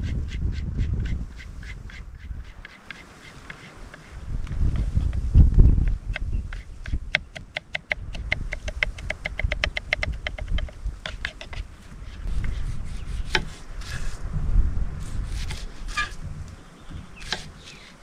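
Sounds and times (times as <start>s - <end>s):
scattered knocks: 7.1s - 11.6s.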